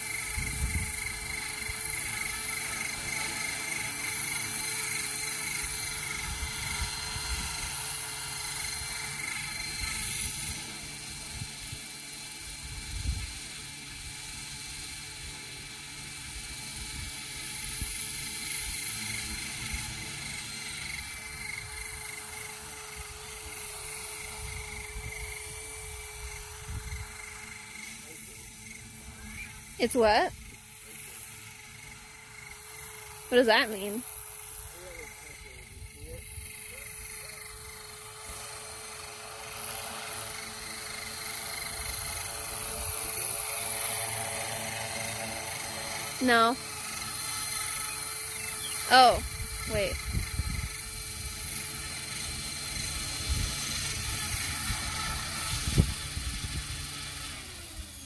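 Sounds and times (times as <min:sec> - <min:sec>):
drone motors whining: 0:00.0 - 0:58.0
propellers buzzing: 0:00.0 - 0:58.0
wind buffeting microphone: 0:53.2 - 0:56.8.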